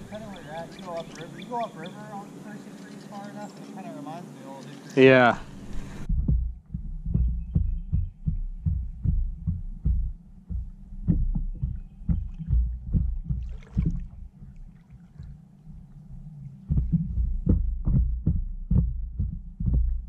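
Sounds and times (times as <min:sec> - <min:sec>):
water splash: 0:00.0 - 0:01.5, 0:13.3 - 0:15.4.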